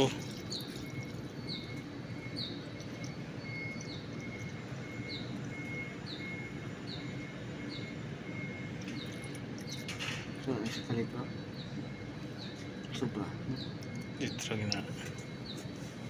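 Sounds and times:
fuel pouring into filter: 0.0s - 5.8s, 8.7s - 9.9s.

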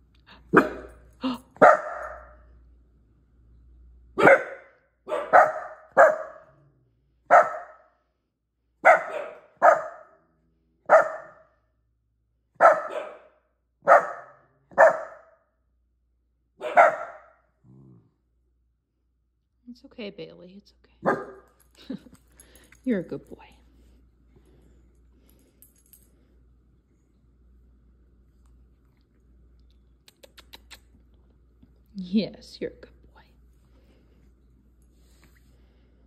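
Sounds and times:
dog barking sharply: 0.5s - 0.9s, 1.6s - 2.4s, 4.2s - 6.4s, 7.3s - 7.8s, 8.8s - 10.1s, 10.9s - 11.4s, 12.6s - 15.3s, 16.6s - 17.3s.

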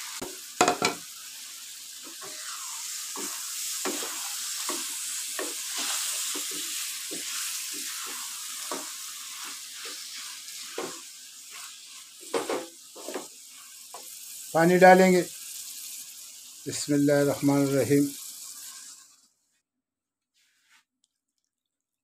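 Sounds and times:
beans sizzling in hot oil: 0.0s - 19.3s
wooden spatula scraping pan: 2.0s - 13.3s.

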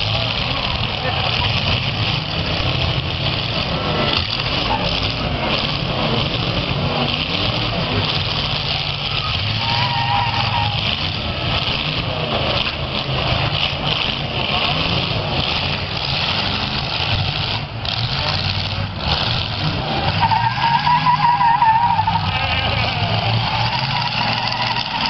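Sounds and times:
car engines revving: 0.0s - 25.0s
tyres skidding on pavement: 0.0s - 25.0s.

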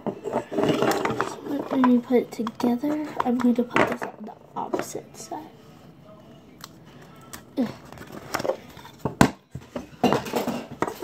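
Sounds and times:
plastic container handling noises: 0.0s - 5.0s, 7.7s - 11.0s
rustling and scraping: 0.0s - 5.0s, 7.8s - 11.0s.

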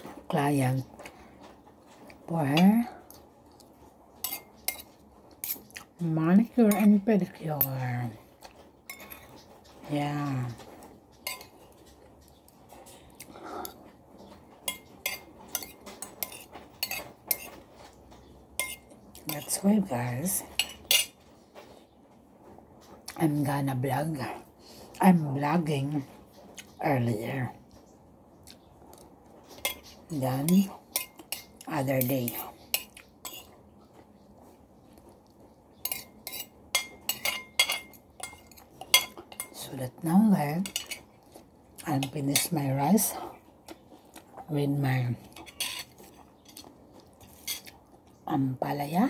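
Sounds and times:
cutlery clinking on a plate: 4.2s - 5.8s, 8.9s - 9.5s, 11.2s - 12.0s, 14.6s - 18.0s, 18.6s - 19.5s, 29.5s - 33.5s, 35.8s - 39.6s, 45.4s - 46.6s.

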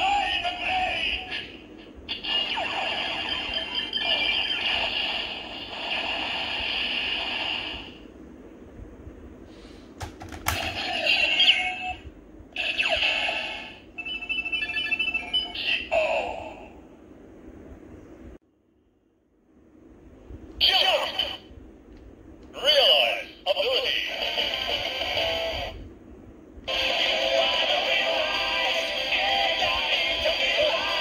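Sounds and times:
electronic toy sound effects and voice: 0.0s - 5.0s, 10.6s - 12.0s, 12.6s - 16.7s, 20.6s - 21.5s, 22.6s - 25.8s, 26.7s - 31.0s.

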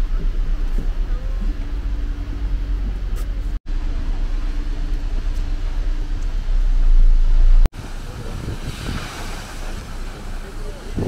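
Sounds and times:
boat engine rumbling: 0.0s - 11.0s
wind buffeting microphone: 7.2s - 11.0s
waterfall spray hissing: 7.8s - 11.0s.

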